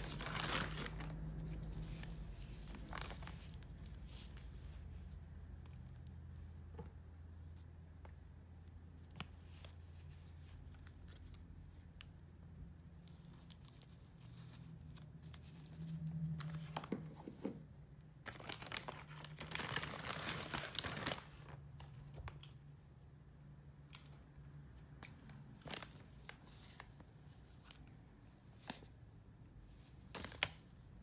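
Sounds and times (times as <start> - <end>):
plastic crinkling and rustling: 0.0 - 5.0, 18.2 - 22.7, 23.9 - 29.0.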